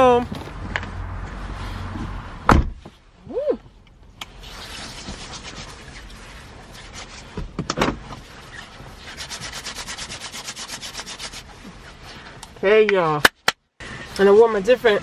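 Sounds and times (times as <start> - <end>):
hands rubbing together: 4.4 - 7.3, 8.5 - 11.6.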